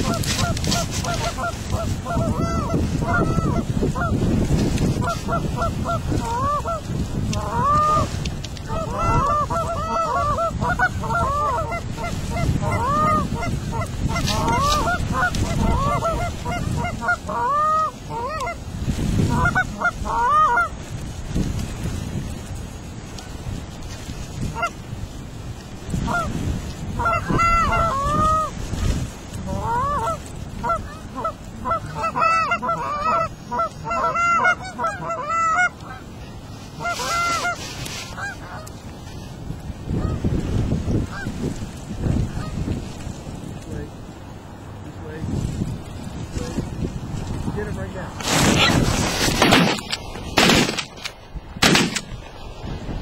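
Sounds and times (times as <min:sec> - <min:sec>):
goose honking and clucking: 0:00.0 - 0:04.2, 0:04.9 - 0:18.6, 0:19.2 - 0:20.7, 0:24.5 - 0:24.8, 0:27.0 - 0:28.6, 0:29.4 - 0:36.1, 0:36.8 - 0:38.8, 0:41.1 - 0:41.3
wind rumble on microphone: 0:00.0 - 0:53.0.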